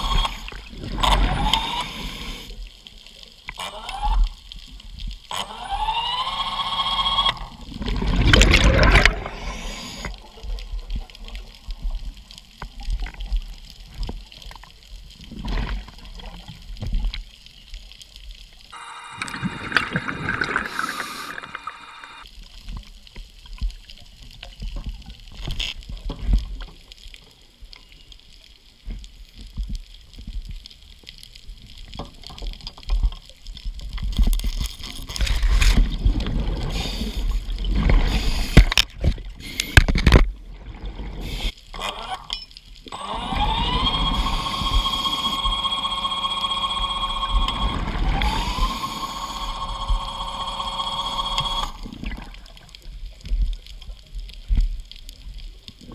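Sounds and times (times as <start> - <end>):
underwater scooter motor whining: 5.3 - 7.6, 42.9 - 51.9
regulator bubbles gurgling: 7.4 - 11.0, 18.7 - 22.2, 42.9 - 52.6.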